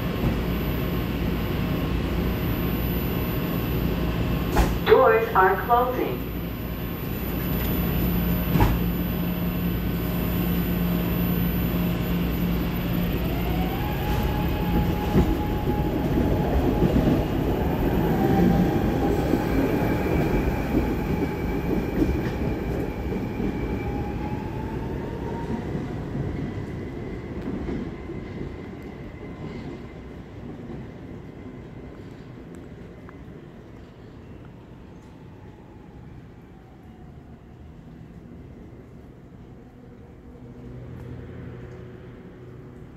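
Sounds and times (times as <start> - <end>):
train clunk: 4.4 - 4.9, 8.4 - 8.9.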